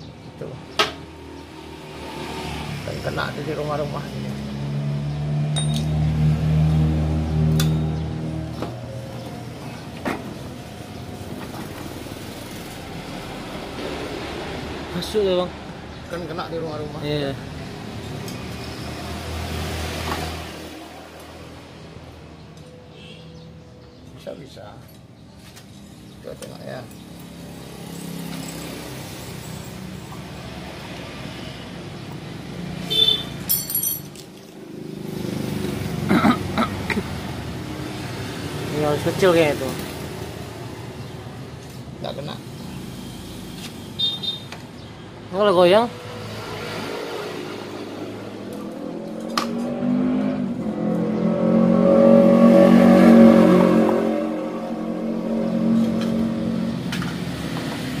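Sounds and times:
spanner clinking on metal: 0:05.5 - 0:06.0, 0:33.4 - 0:34.5.

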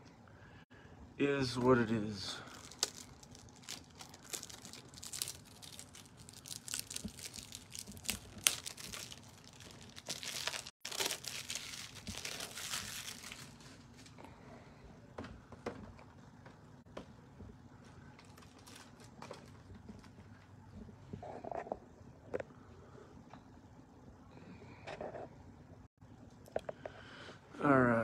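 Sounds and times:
crinkling and rustling: 0:02.5 - 0:14.3, 0:15.2 - 0:22.4.

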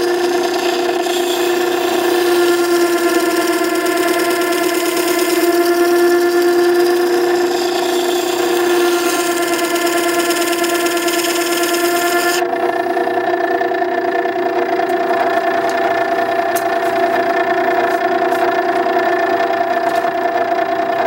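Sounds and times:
steel grinding on wet wheel: 0:00.0 - 0:12.4
sharpener motor whining: 0:00.0 - 0:21.0.

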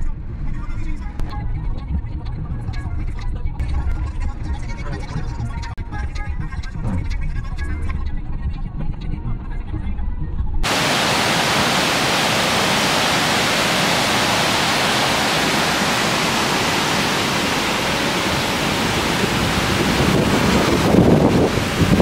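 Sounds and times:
river rushing over boulders: 0:10.6 - 0:22.0.

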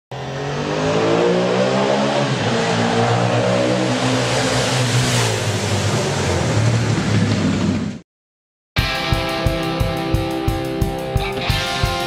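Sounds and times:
vehicle engine revving: 0:00.1 - 0:08.0.

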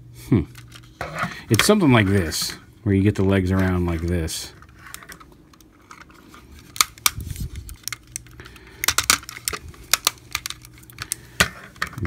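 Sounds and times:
plastic toy parts clicking: 0:06.7 - 0:12.0.

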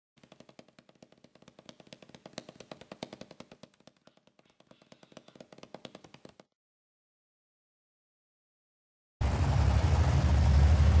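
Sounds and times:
sharp clicks and knocks: 0:00.2 - 0:06.5.

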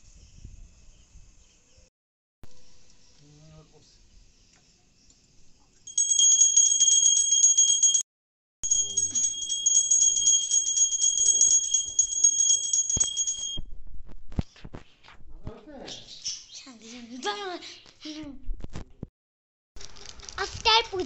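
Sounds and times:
bell ringing rapidly: 0:05.9 - 0:13.6.

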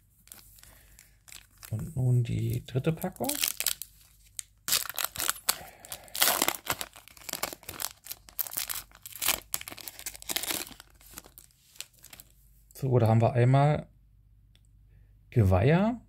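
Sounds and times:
card pack wrapper crinkling: 0:00.2 - 0:12.4.

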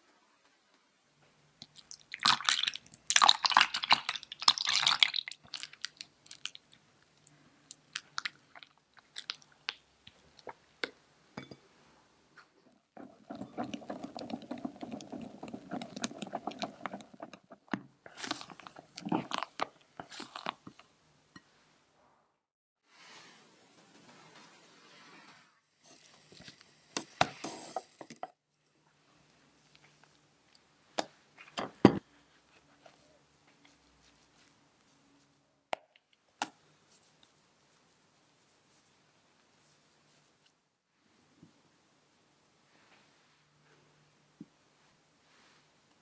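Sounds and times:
milk pouring: 0:01.7 - 0:06.6, 0:13.0 - 0:20.8
wet squelching and scraping: 0:13.0 - 0:20.8.

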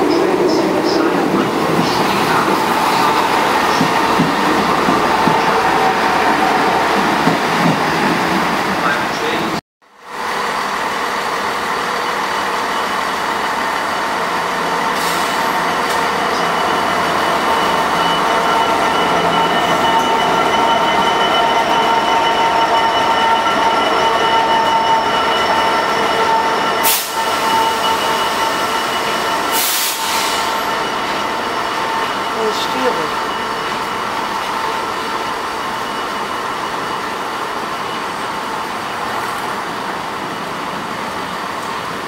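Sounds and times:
freight train passing: 0:00.0 - 0:42.0
steady high tones: 0:12.1 - 0:39.0.

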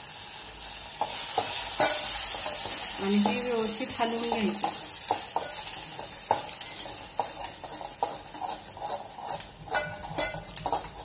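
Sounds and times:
faint sizzle of frying: 0:00.0 - 0:11.0
spoon scraping metal pot: 0:05.4 - 0:11.0.

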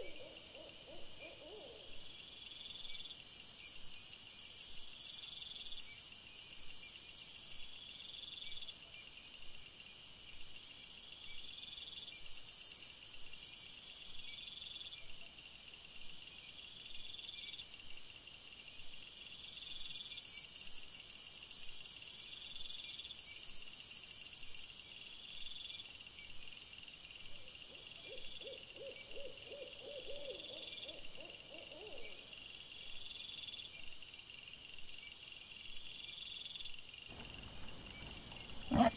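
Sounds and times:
high continuous insect hiss: 0:00.0 - 0:38.9
insects chirping: 0:10.8 - 0:38.9
low warbling animal call: 0:38.7 - 0:38.9.

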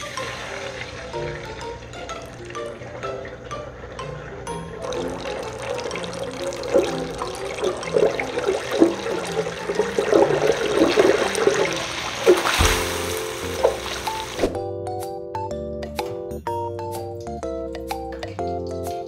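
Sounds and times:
oil sizzling in deep fryer: 0:00.0 - 0:14.5
background music: 0:00.0 - 0:19.0.

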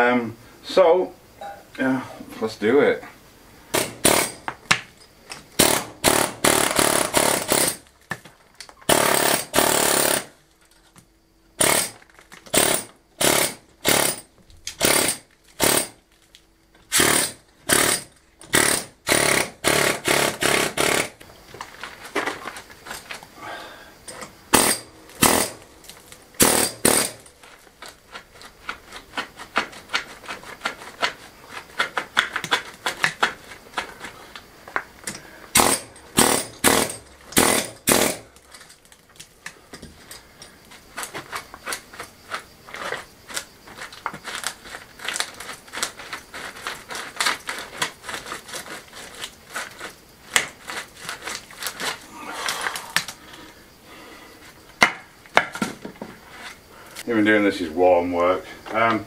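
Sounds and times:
pneumatic air hammer chipping stone: 0:03.7 - 0:04.8, 0:05.6 - 0:07.9, 0:08.8 - 0:10.4, 0:11.6 - 0:16.0, 0:16.9 - 0:21.3, 0:24.1 - 0:25.7, 0:26.4 - 0:27.4, 0:35.1 - 0:38.6, 0:39.7 - 0:53.1.

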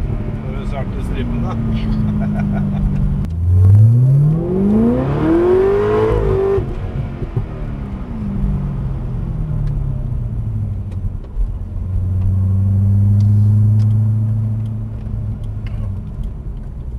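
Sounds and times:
car engine drone: 0:00.0 - 0:16.9.

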